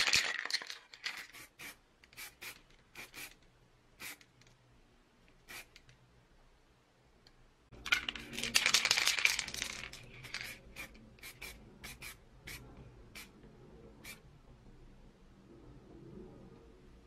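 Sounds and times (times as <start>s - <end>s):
spray paint can hissing: 1.2s - 3.4s, 4.0s - 4.2s, 5.5s - 5.8s, 10.2s - 12.6s.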